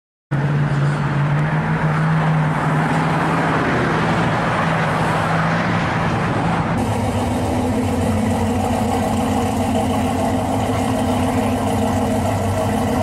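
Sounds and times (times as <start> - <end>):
car engine running: 6.8 - 13.0.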